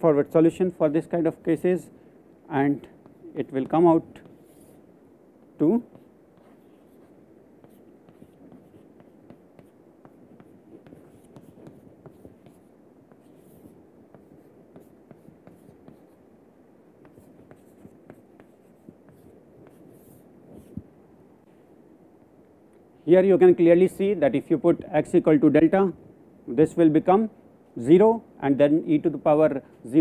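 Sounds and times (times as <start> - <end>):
chalk scratching on chalkboard: 3.0 - 4.9, 5.6 - 16.2, 17.0 - 20.8.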